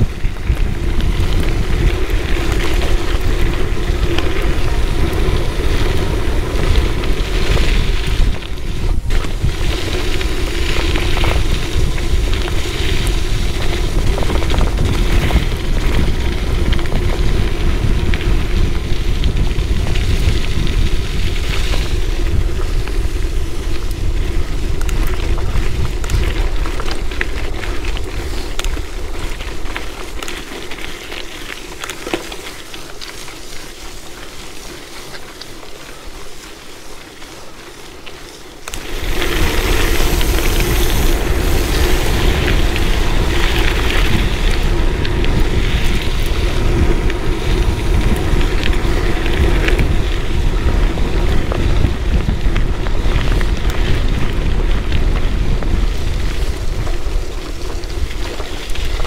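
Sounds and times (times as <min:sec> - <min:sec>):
grit ticking: 0:00.0 - 0:59.0
wind buffeting microphone: 0:00.0 - 0:59.0
tyres hissing on wet road: 0:35.7 - 0:49.7.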